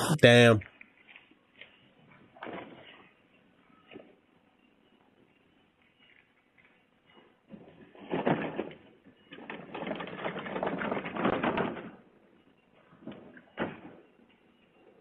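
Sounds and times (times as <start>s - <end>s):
plastic bin rolling over pavement: 7.9s - 12.0s.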